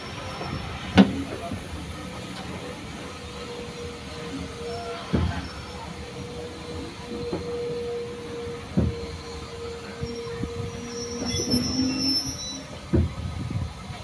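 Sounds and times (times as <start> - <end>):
train wheels rolling on track: 0.0 - 14.0
wheel squeal: 4.6 - 12.9.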